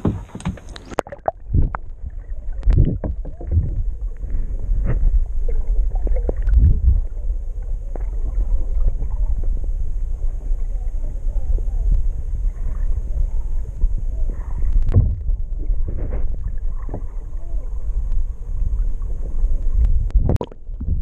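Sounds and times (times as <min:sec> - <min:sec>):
dull knocks: 0:00.0 - 0:00.7
muffled underwater rumble: 0:00.0 - 0:21.0.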